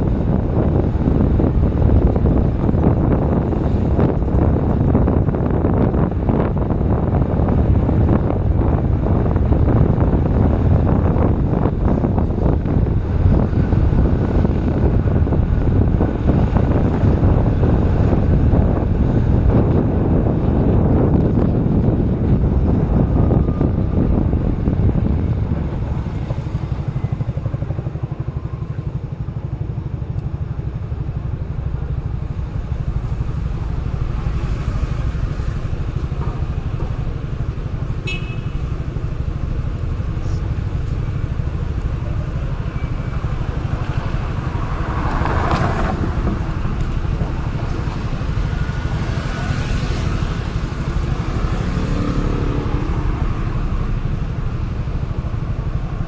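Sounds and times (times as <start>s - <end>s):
car engine rumble: 0.0s - 56.0s
motor scooters: 0.0s - 56.0s
vehicle passing: 43.0s - 54.4s.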